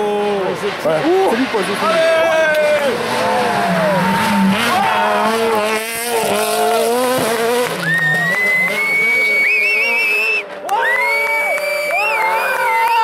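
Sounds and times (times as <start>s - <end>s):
rally car engine revving past: 0.1s - 10.6s
high steady whistle tone: 7.8s - 12.5s.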